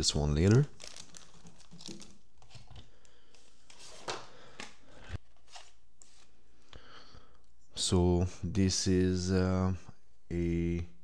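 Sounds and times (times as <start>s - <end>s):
packaging rustling: 0.4s - 4.7s.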